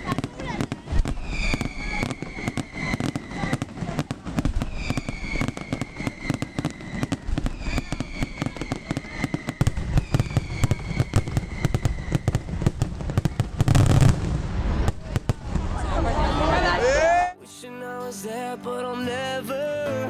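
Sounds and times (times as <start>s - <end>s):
fireworks whistles falling in pitch: 0.0s - 15.3s
fireworks bangs and crackles: 0.0s - 16.7s.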